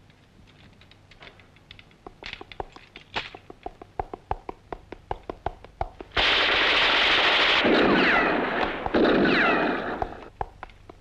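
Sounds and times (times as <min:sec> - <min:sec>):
film gunfire and blasts: 0:06.2 - 0:10.3
bullets ricocheting whines: 0:06.4 - 0:10.3.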